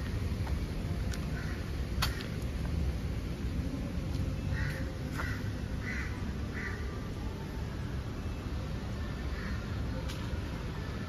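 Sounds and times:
low outdoor background rumble: 0:00.0 - 0:11.0
crows cawing: 0:01.3 - 0:02.3, 0:04.5 - 0:06.9, 0:09.4 - 0:09.6.

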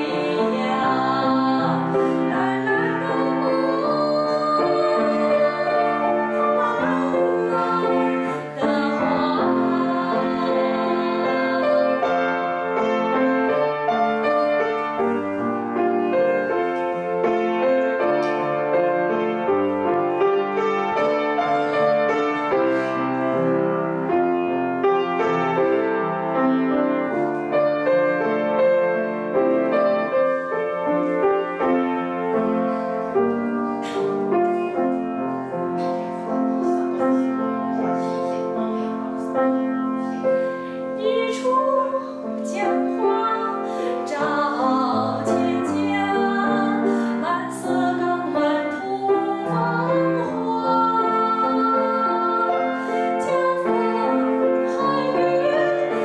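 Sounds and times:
woman singing: 0:00.0 - 0:15.2, 0:41.0 - 0:56.0
piano accompaniment: 0:00.0 - 0:56.0.

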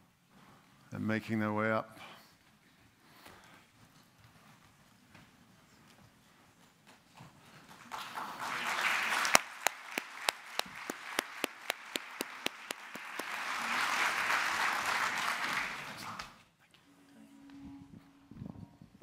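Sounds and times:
audience applause: 0:07.7 - 0:16.4
close sharp hand claps: 0:07.8 - 0:16.4.

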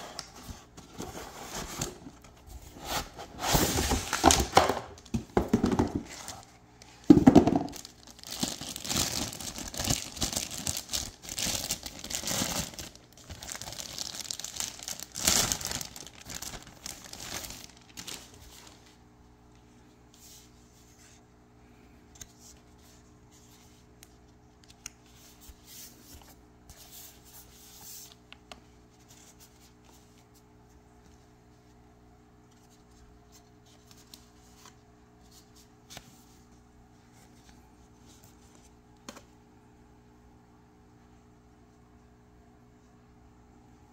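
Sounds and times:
low steady hum: 0:00.0 - 0:43.9
plastic bag crinkling: 0:07.2 - 0:18.9.

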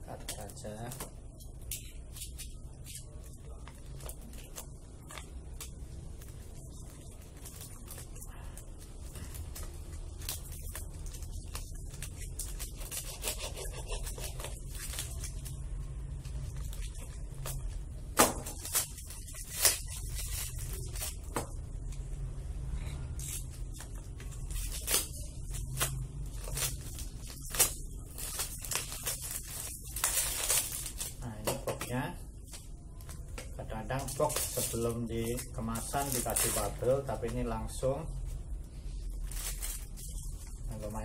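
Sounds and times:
steady low hum: 0:00.0 - 0:41.0
plastic mailer crinkling: 0:33.0 - 0:38.0.

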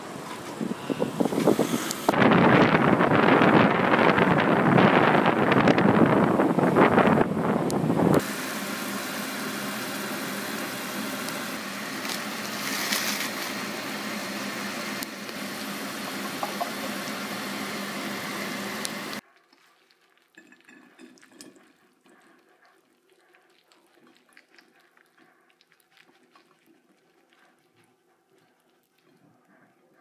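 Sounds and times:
wind buffeting microphone: 0:00.0 - 0:08.2
vegetables sizzling in a frying pan: 0:08.2 - 0:19.2.

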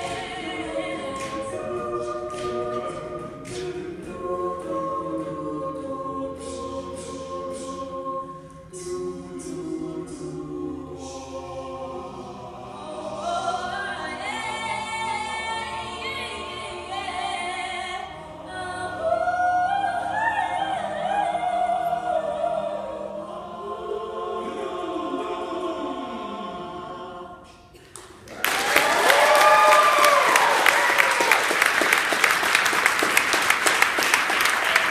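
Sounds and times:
a cappella group singing in harmony: 0:00.0 - 0:27.9.

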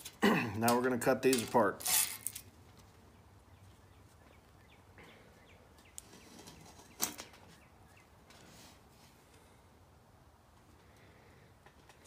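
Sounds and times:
cable being cut and pulled apart: 0:00.0 - 0:02.4.

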